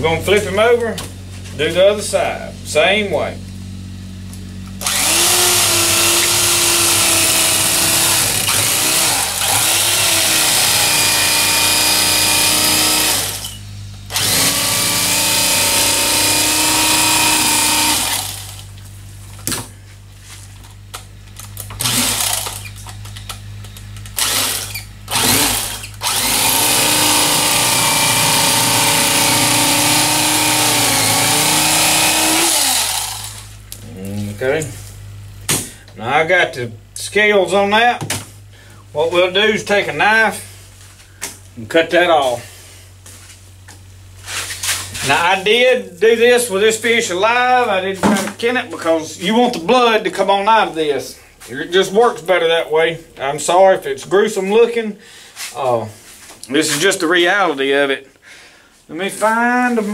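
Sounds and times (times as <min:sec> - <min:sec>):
electric fillet knife motor hum: 0:04.6 - 0:18.8, 0:21.5 - 0:23.0, 0:24.2 - 0:33.6.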